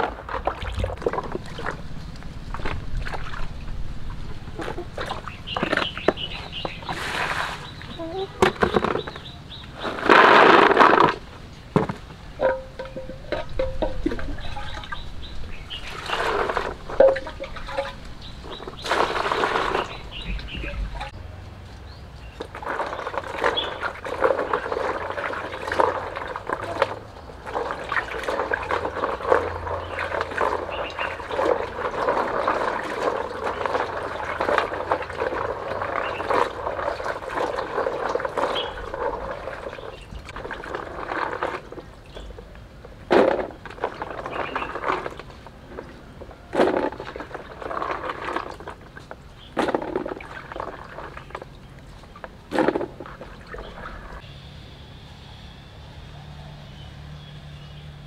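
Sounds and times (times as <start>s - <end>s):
loud water splashes: 0.0s - 8.0s, 12.2s - 21.2s, 22.4s - 42.3s
hands sloshing water in basin: 0.0s - 11.2s, 12.4s - 21.2s, 22.2s - 54.2s.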